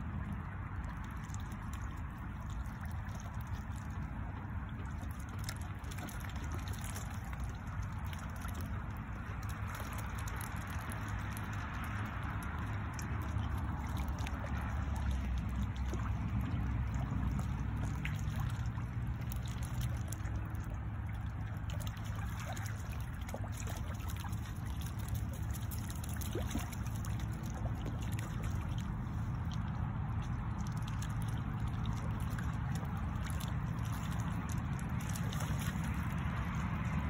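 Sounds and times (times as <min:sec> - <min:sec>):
ducks splashing in water: 0:00.0 - 0:37.0
low rumble: 0:00.0 - 0:37.0.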